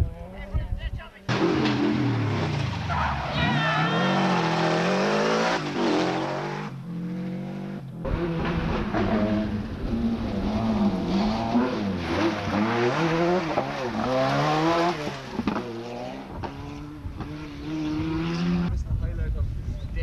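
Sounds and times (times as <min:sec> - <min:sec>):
rally car engine revving: 0:01.3 - 0:18.7
rally car passing: 0:01.3 - 0:18.7.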